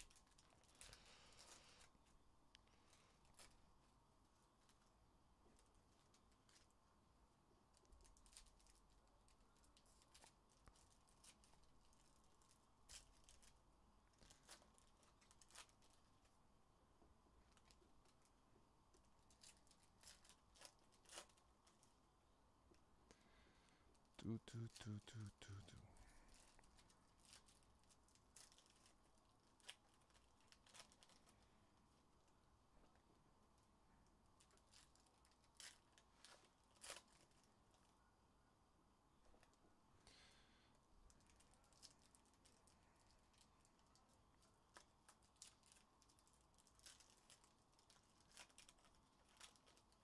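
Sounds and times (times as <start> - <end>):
foil wrapper crinkling and tearing: 7.7 - 16.4, 19.0 - 21.9, 26.2 - 31.5, 34.4 - 37.9, 41.1 - 50.0.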